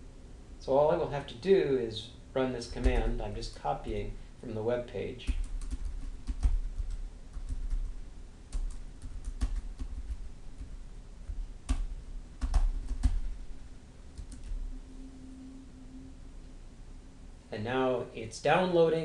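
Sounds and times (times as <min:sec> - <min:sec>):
keyboard typing: 0:05.3 - 0:13.3, 0:14.1 - 0:14.6.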